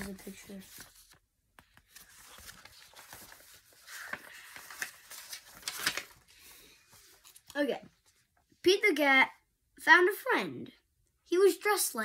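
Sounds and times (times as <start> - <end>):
book pages rustling: 0.0 - 8.4.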